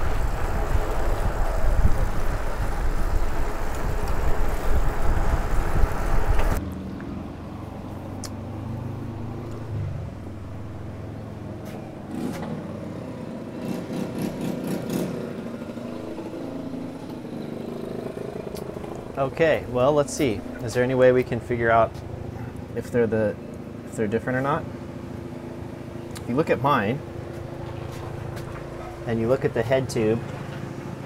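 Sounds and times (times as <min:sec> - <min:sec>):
bicycle tyres on pavement: 0:00.0 - 0:06.6
wind buffeting microphone: 0:00.0 - 0:06.6
heavy low rumble: 0:18.2 - 0:22.9.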